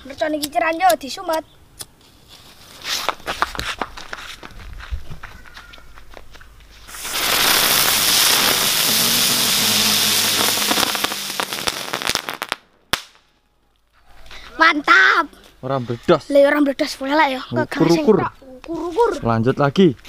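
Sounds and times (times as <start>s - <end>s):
firecrackers hissing and crackling: 2.1s - 3.8s, 6.7s - 13.3s.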